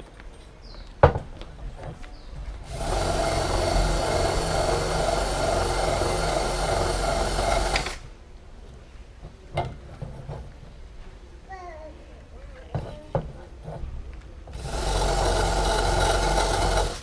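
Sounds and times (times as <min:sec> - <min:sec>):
bicycle wheel hub whirring: 0:02.6 - 0:08.0, 0:14.5 - 0:17.0.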